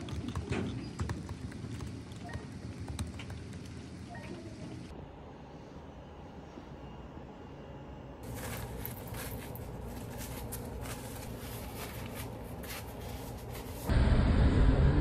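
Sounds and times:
paper towel rustling and crinkling: 8.2s - 13.9s.

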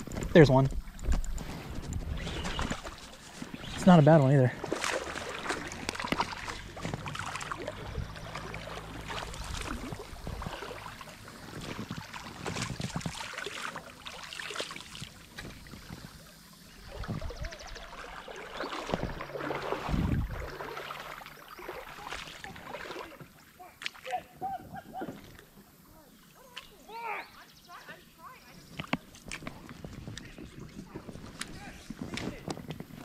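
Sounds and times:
water running over rapids: 0.0s - 24.5s
fish splashing: 0.8s - 24.1s.

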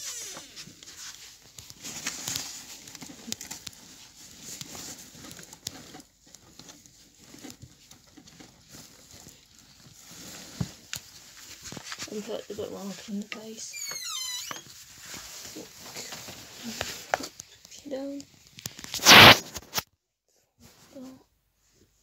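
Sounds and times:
phone rubbing on clothing: 19.0s - 19.4s.

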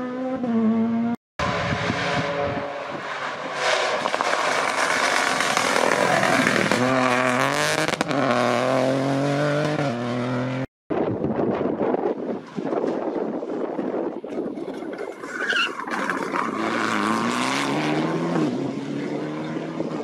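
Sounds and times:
rally car engine shifting gears: 0.1s - 10.7s, 15.4s - 20.0s
tyre noise: 3.9s - 8.5s.

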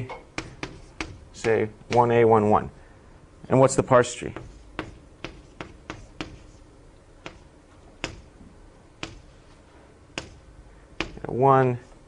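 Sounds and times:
chalk tapping on a board: 0.4s - 2.1s, 4.3s - 6.6s, 7.2s - 8.3s, 9.0s - 9.3s, 10.2s - 10.4s, 11.0s - 11.3s.

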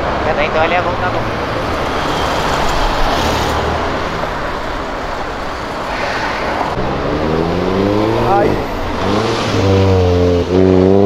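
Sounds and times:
street traffic: 0.0s - 11.0s
car engine revving up: 5.8s - 11.0s.

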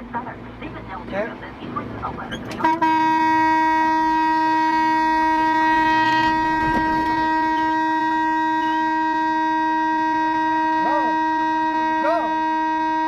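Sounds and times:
vehicle horn blast: 2.6s - 13.0s.

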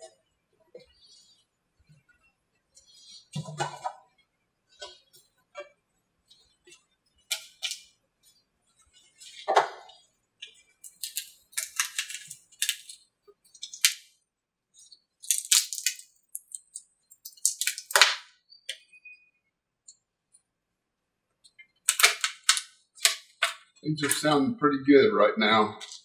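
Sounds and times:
composite mold crackling and snapping: 9.2s - 14.2s, 15.2s - 18.4s, 21.4s - 24.4s.

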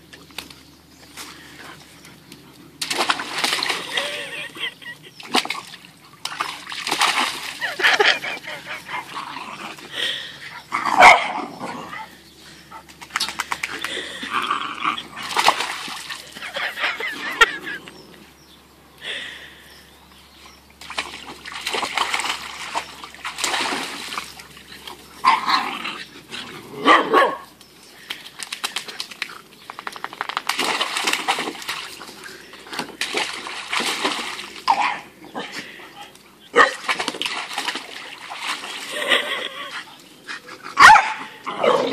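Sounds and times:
puppy splashing in water: 0.1s - 11.3s, 12.7s - 17.7s, 20.4s - 26.7s, 27.3s - 41.6s
dog barking: 11.0s - 11.4s, 26.8s - 27.5s, 36.6s - 36.8s, 40.8s - 41.9s.

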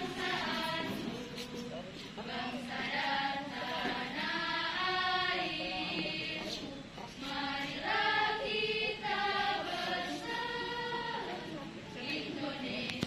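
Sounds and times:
choir singing slow song: 0.0s - 13.0s.

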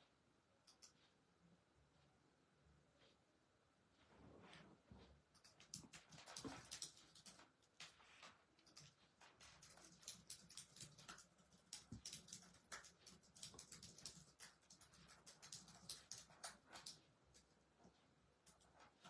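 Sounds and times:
faint irregular clicks: 0.0s - 4.2s, 5.0s - 19.0s
soft rustling: 3.9s - 9.9s.

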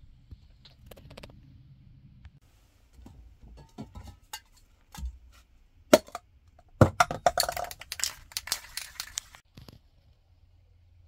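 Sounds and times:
spray cans clinking: 6.8s - 9.4s
spray can ball rattling: 7.0s - 9.4s.

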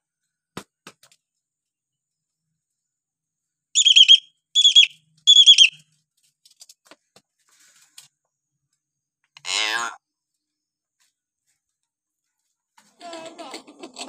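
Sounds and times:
bird shrill whistled calls: 3.8s - 5.8s.

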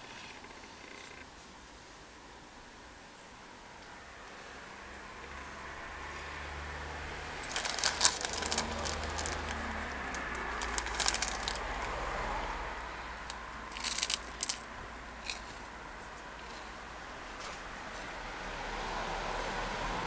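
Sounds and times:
plastic wrapper crinkling: 7.4s - 12.0s, 13.2s - 15.5s.

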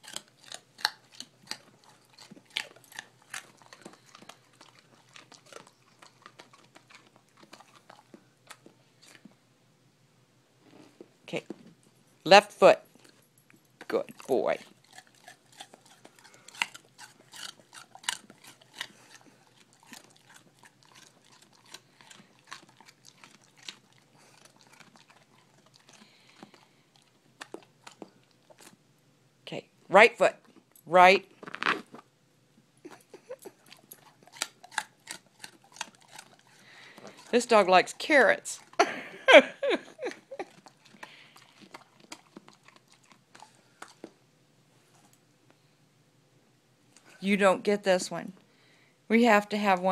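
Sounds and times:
dog chewing crunchy treat: 0.0s - 9.4s, 10.8s - 28.8s, 32.8s - 44.2s.

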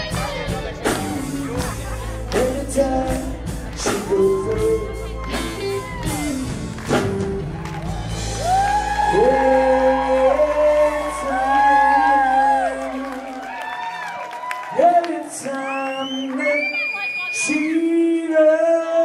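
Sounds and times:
held bass notes: 0.0s - 13.3s
person singing: 0.0s - 13.6s, 14.7s - 19.0s.

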